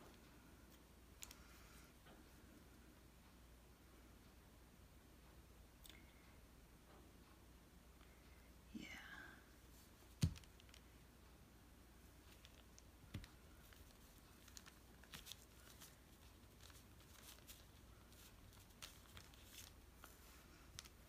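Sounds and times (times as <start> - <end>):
paper rustling: 12.2 - 21.0.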